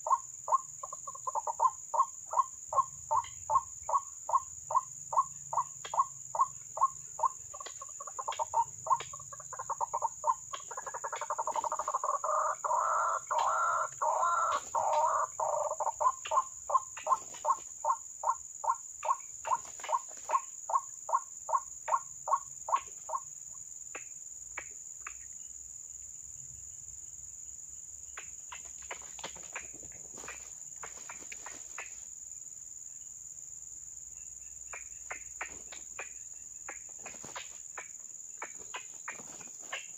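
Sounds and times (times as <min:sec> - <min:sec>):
high insect drone: 0:00.0 - 0:39.9
waterhen croaking calls: 0:05.9 - 0:20.4.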